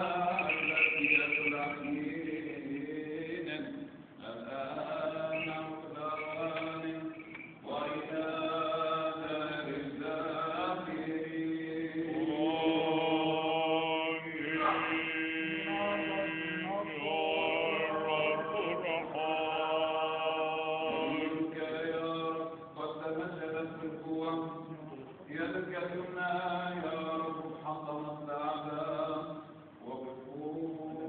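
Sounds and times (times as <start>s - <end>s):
held drone note: 0.0s - 3.1s
voices chanting long notes: 0.0s - 3.4s, 11.1s - 22.1s.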